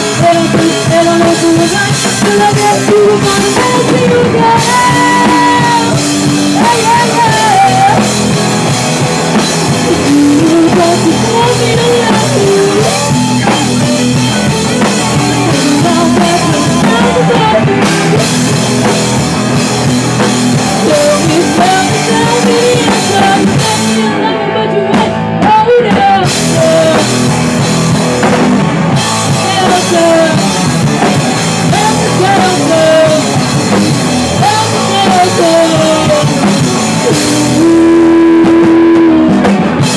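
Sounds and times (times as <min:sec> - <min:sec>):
woman singing: 0:00.0 - 0:08.4, 0:09.6 - 0:18.6, 0:20.5 - 0:27.3, 0:29.0 - 0:39.5
drum kit: 0:00.0 - 0:39.9
electric guitar: 0:00.0 - 0:39.9.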